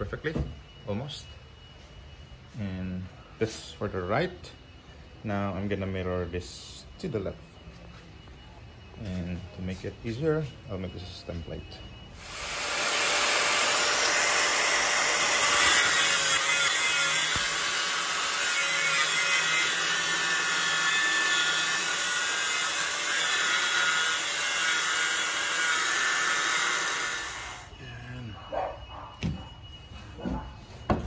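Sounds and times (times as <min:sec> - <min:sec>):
angle grinder grinding steel: 0:12.2 - 0:27.8.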